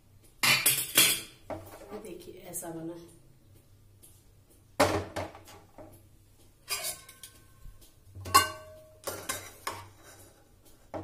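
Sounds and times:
metal kitchenware clanking: 0.4s - 1.9s, 6.6s - 7.6s, 8.2s - 10.4s.

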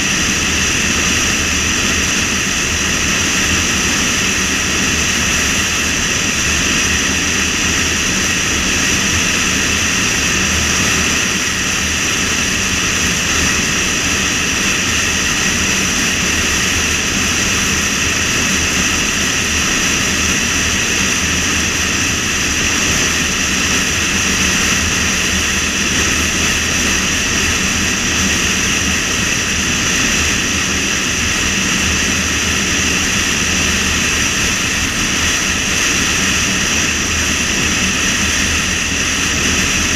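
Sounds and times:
wind and tyre noise: 0.0s - 39.9s.

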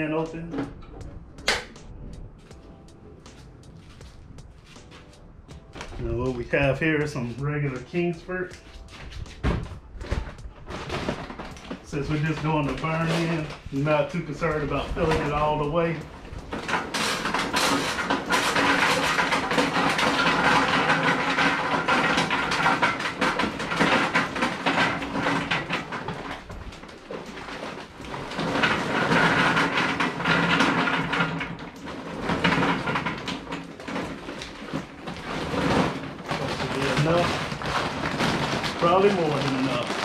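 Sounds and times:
charcoal clattering into metal hopper: 10.0s - 40.0s.

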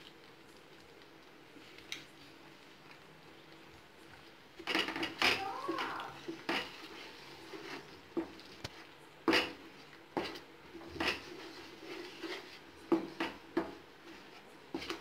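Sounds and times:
wooden spatula scraping metal pan: 4.8s - 8.3s, 10.2s - 13.4s.

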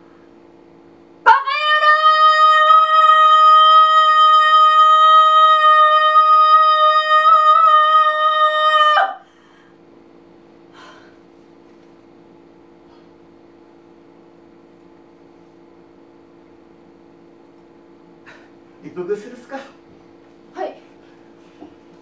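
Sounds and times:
faint steady hum: 0.0s - 22.0s
woman shouting: 1.3s - 9.2s.

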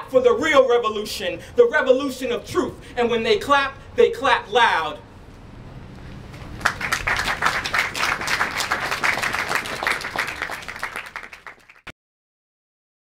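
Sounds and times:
audience applauding: 6.3s - 11.9s.

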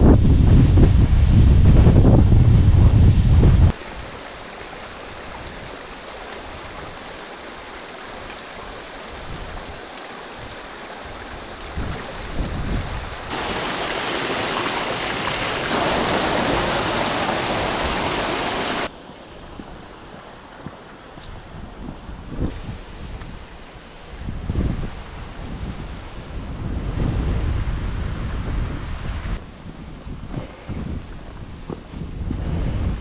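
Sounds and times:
rushing waterfall: 0.0s - 29.5s.

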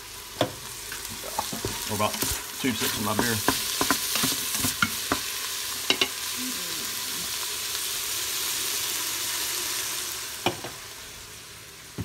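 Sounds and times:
food sizzling in a pot: 0.0s - 12.0s
wooden spoon scraping a pot: 1.2s - 5.2s.

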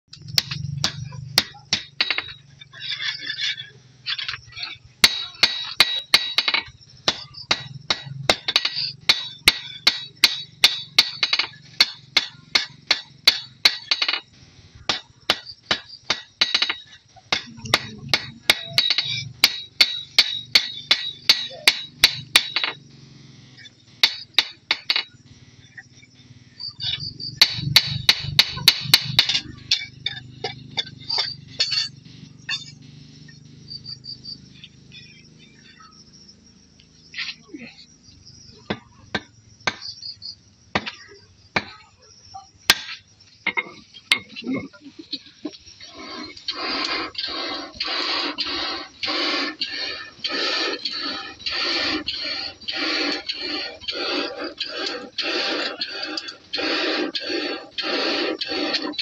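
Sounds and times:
hammer striking metal on anvil: 0.2s - 2.4s, 5.0s - 14.2s, 14.9s - 22.8s, 24.0s - 25.1s, 27.4s - 32.8s.

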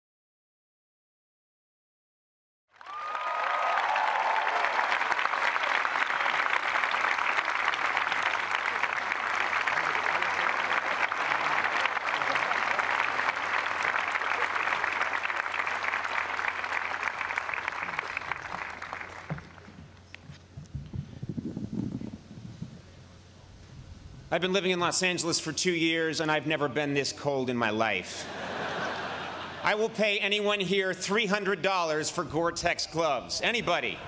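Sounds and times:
crowd applauding: 2.7s - 19.9s.

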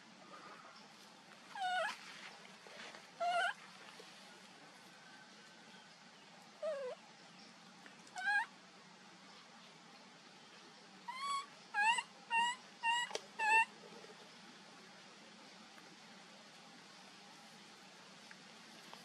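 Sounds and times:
baby monkey high-pitched cries: 1.6s - 1.9s, 3.2s - 3.6s, 6.6s - 7.0s, 8.2s - 8.5s, 11.1s - 13.7s.

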